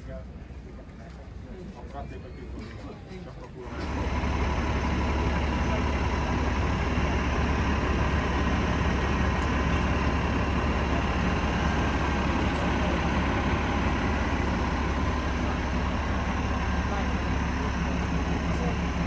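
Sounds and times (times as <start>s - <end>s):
engine idling: 3.6s - 19.0s.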